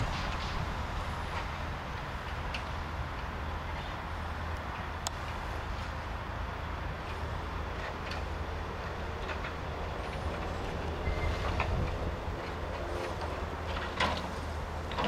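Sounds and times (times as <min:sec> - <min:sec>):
rubbish clattering into lorry: 0:00.0 - 0:04.2, 0:06.9 - 0:15.0
diesel engine running: 0:00.0 - 0:15.0.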